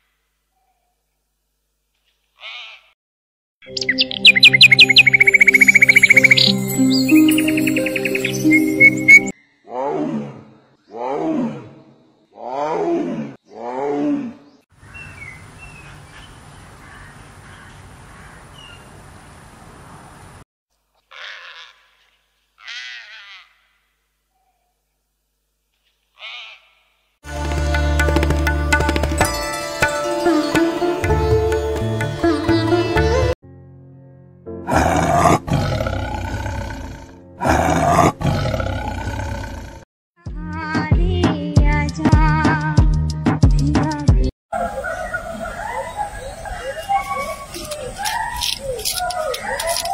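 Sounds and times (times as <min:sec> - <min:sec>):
animal call: 0:02.4 - 0:02.9, 0:26.2 - 0:26.8, 0:44.6 - 0:49.9
background music: 0:03.6 - 0:09.3, 0:27.2 - 0:35.4
bird chirps: 0:03.6 - 0:09.7, 0:44.6 - 0:49.9
tiger roaring: 0:09.7 - 0:11.8, 0:34.7 - 0:39.8.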